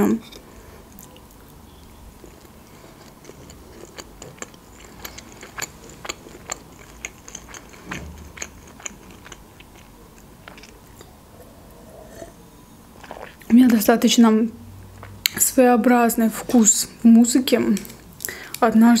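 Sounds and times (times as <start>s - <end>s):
person chewing food: 0.8s - 12.4s, 13.0s - 13.5s.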